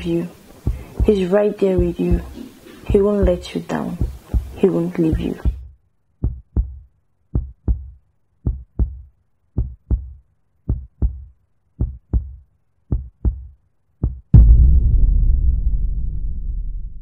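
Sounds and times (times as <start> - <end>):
heartbeat thuds: 0.0 - 14.3
loud low boom: 14.3 - 17.0.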